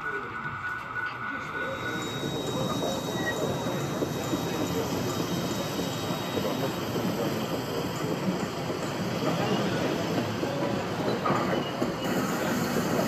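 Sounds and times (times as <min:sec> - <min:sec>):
model train wheels rolling on rails: 0:00.5 - 0:13.0
thin high tone: 0:01.5 - 0:07.1.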